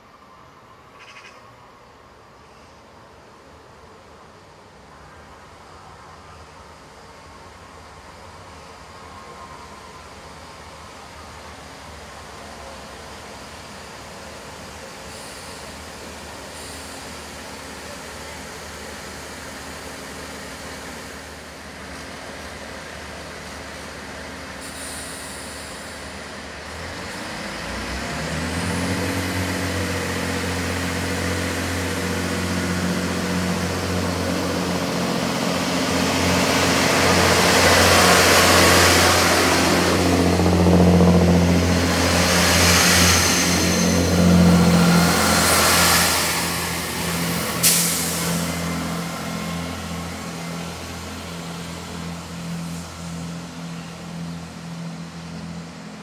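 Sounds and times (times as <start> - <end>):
diesel train engine: 1.5 - 56.0
wheel and rail hiss: 3.8 - 28.4, 42.2 - 54.0.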